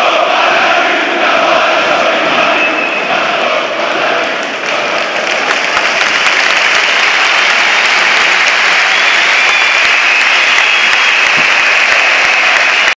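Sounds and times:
crowd applauding: 4.0s - 13.0s.

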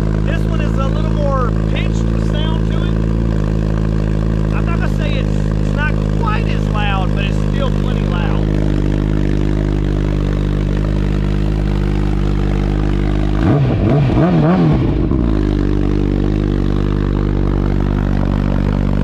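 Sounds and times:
motorcycle engine idling: 0.0s - 19.0s
motorcycle throttle blips: 0.0s - 19.0s.

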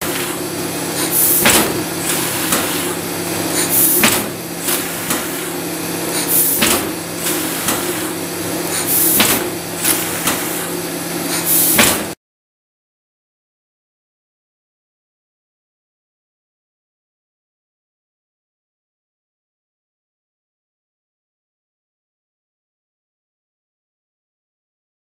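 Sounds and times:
laminator humming: 0.0s - 12.2s
sharp clack: 3.6s - 5.3s.

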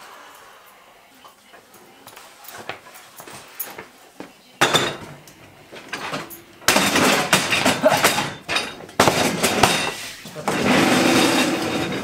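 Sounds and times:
folding table clattering: 4.6s - 12.0s
metal table legs scraping and rattling: 5.8s - 12.0s.

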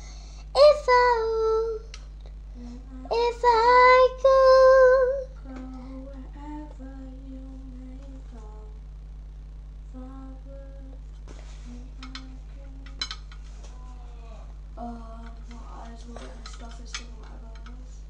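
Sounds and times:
girl singing unaccompanied: 0.0s - 2.0s, 2.6s - 8.8s, 9.9s - 11.0s, 11.6s - 13.2s
low electrical hum: 0.0s - 18.0s.

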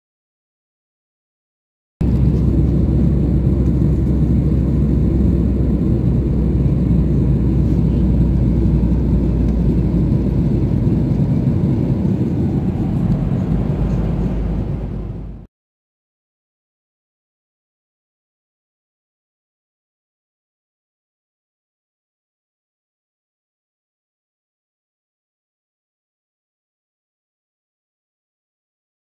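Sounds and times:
jet engine rumble: 2.0s - 15.5s
rushing airflow: 2.0s - 15.5s.

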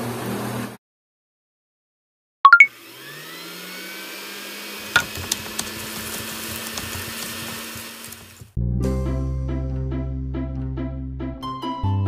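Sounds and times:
rising beeps: 2.5s - 2.7s
frying sizzle: 4.2s - 8.5s.

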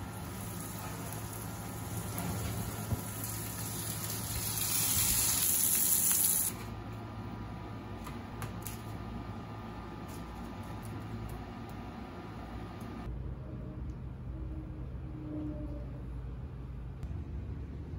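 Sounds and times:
food sizzling on a pan: 0.0s - 6.5s.

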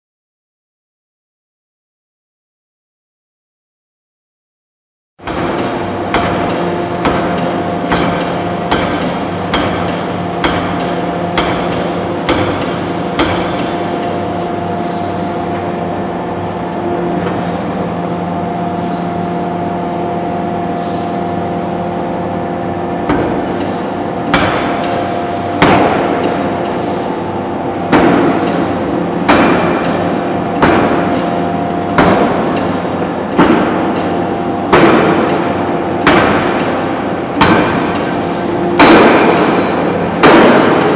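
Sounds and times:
forging hammer heavy blows: 5.2s - 17.8s, 22.9s - 40.9s
machine hum: 5.2s - 40.9s.

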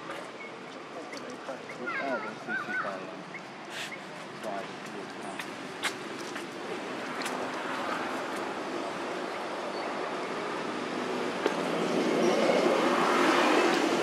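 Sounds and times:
passing motor vehicle engine: 6.8s - 14.0s.

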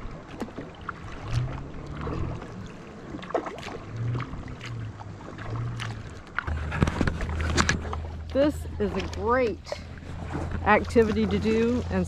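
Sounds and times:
paddle splashing water: 0.0s - 12.0s
low rumble: 1.0s - 12.0s.

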